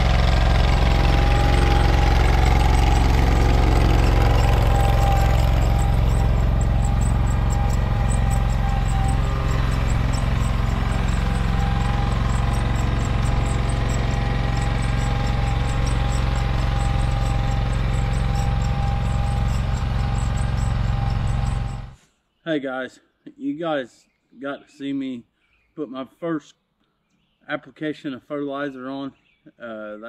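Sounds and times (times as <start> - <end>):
tractor engine running: 0.0 - 22.0.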